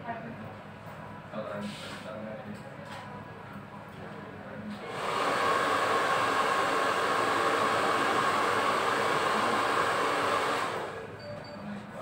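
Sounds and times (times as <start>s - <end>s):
hair dryer blowing: 4.8s - 11.2s.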